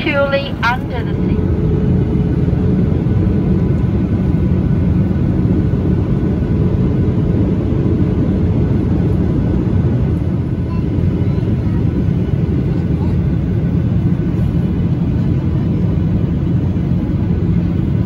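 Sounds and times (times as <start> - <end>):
aircraft cabin engine rumble: 0.0 - 18.0.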